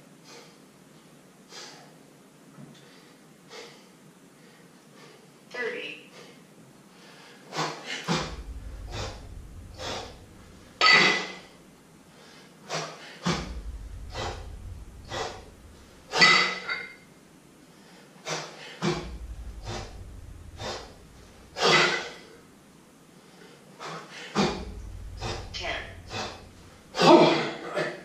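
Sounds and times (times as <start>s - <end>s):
man breathing quickly: 2.7s - 5.4s, 6.1s - 10.8s
man exhaling forcefully: 7.2s - 11.6s.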